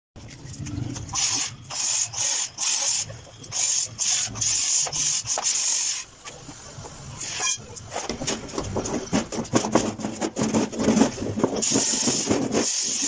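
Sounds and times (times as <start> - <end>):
scrubbing steel sheet: 7.2 - 13.0.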